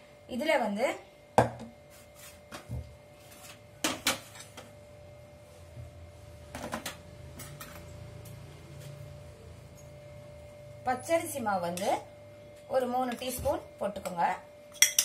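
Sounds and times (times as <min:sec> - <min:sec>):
faint steady hum: 0:00.0 - 0:15.0
bowls knocking and clinking: 0:14.7 - 0:15.0.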